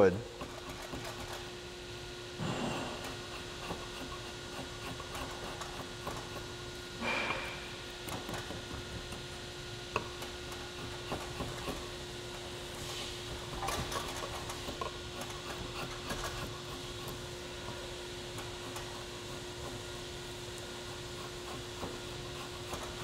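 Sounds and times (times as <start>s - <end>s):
steady hum: 0.0s - 23.0s
draw knife scraping wood: 0.4s - 1.5s, 2.4s - 6.4s, 9.9s - 12.0s, 13.4s - 17.2s, 20.8s - 23.0s.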